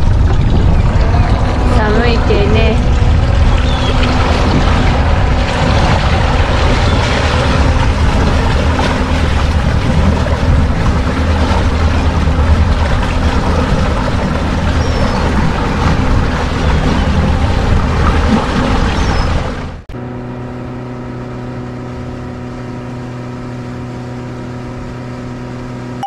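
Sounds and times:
continuous rushing noise: 0.0s - 19.9s
boat engine running: 0.0s - 26.0s.

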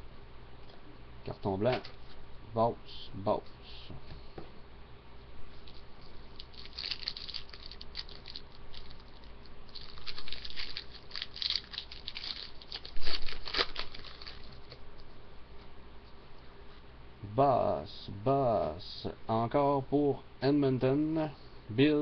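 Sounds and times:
wrapper crinkling and tearing: 5.7s - 14.8s.

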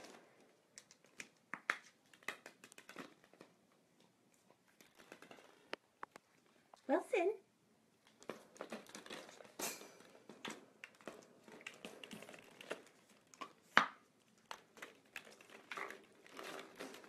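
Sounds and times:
plastic balls clattering: 4.7s - 5.8s, 8.1s - 17.0s.

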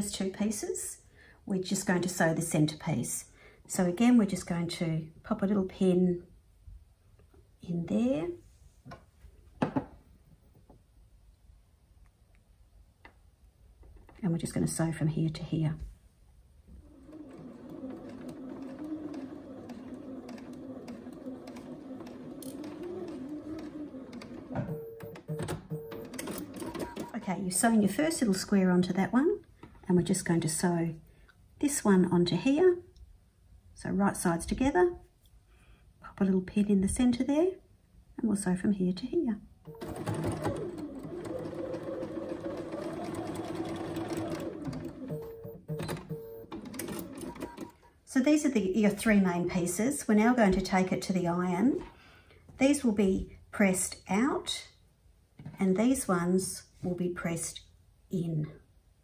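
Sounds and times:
electric sewing machine running: 16.8s - 24.6s, 39.7s - 45.4s.

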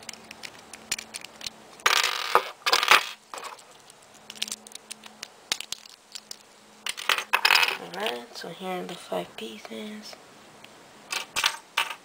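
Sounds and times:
spinning top parts clicking: 0.0s - 8.2s.

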